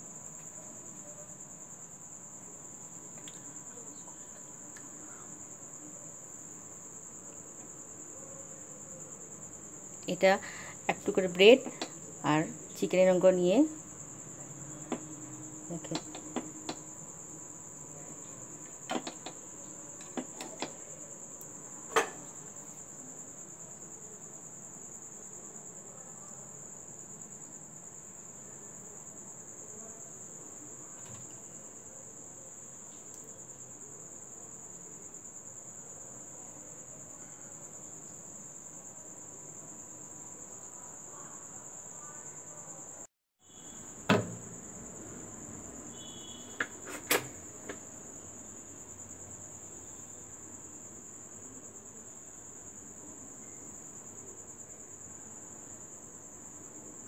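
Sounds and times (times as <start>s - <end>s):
crickets trilling: 0.0s - 57.0s
sharp clicks and knocks: 15.8s - 16.8s, 18.9s - 19.4s, 20.0s - 20.8s, 44.1s - 44.6s.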